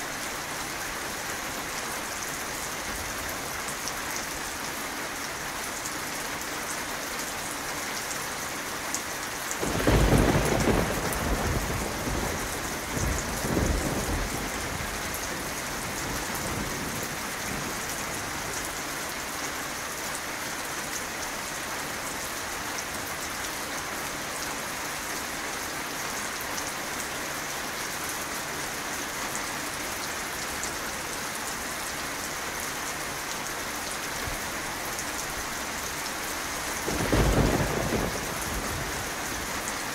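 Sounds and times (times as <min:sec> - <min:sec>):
steady rain: 0:00.0 - 0:39.9
thunder rolling: 0:09.6 - 0:15.2, 0:36.9 - 0:39.0.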